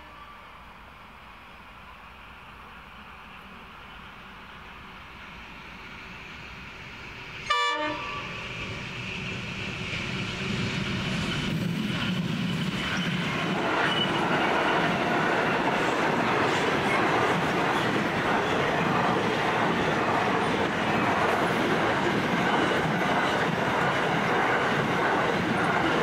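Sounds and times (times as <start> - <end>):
diesel engines of passing train: 0.0 - 26.0
rolling train wagons: 3.3 - 26.0
locomotive horn blast: 7.5 - 8.4.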